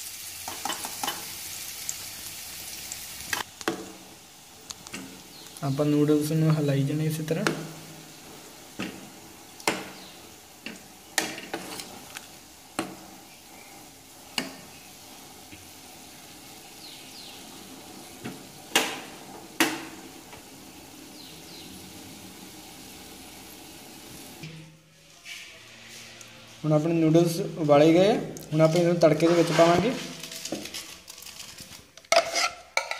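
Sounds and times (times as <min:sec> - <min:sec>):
boiling water bubbling: 0:03.2 - 0:24.4
metal spoon scraping a metal pot: 0:29.1 - 0:32.9.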